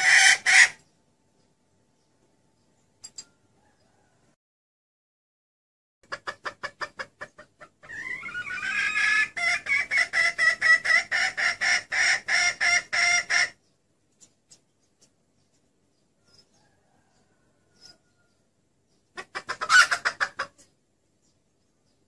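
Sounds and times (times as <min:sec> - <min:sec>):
hen clucking and cackling: 0:00.0 - 0:00.9, 0:06.0 - 0:13.8, 0:16.1 - 0:20.9.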